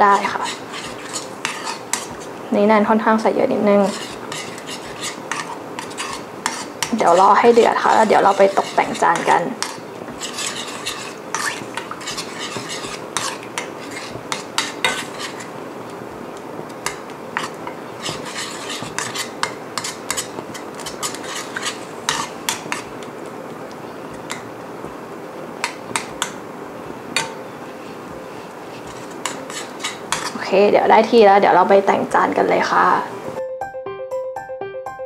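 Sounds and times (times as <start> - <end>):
metal spoon scraping a pan: 0.0 - 2.4, 3.6 - 15.6, 16.8 - 23.0, 25.6 - 26.4, 27.2 - 30.5.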